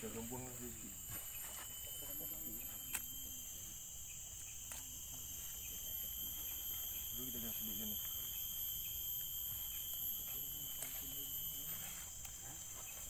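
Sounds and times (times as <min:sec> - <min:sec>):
insects chirring: 0:00.0 - 0:13.0
sharp click: 0:02.8 - 0:03.1, 0:04.4 - 0:04.9.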